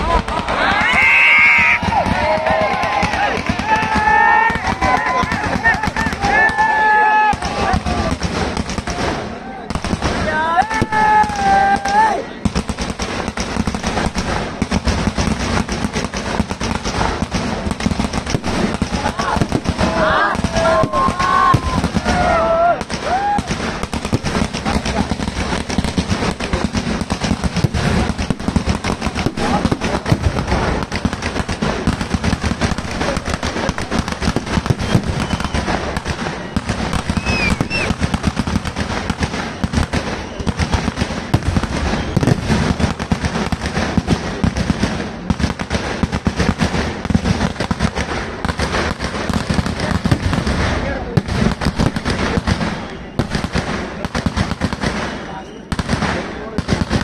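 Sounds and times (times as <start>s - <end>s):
firecracker bangs and crackling: 0.0s - 57.0s
firework whistles: 34.3s - 38.0s, 39.4s - 40.8s, 41.6s - 42.6s, 54.9s - 55.8s.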